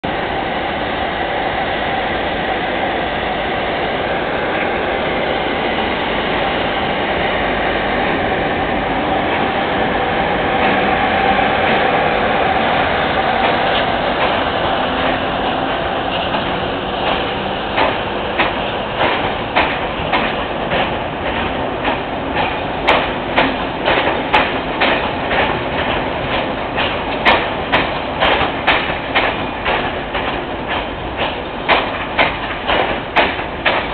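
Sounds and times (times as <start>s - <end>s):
train rumbling hum: 0.0s - 33.9s
wheels clacking over rail joints: 9.2s - 33.9s.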